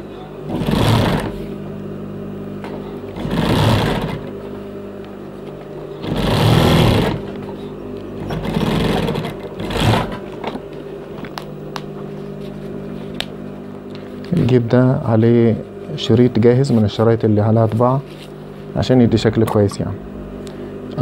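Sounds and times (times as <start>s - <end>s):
motor humming: 0.0s - 17.6s
sewing machine stitching: 0.5s - 1.4s, 3.1s - 4.3s, 6.0s - 7.4s, 8.2s - 10.6s.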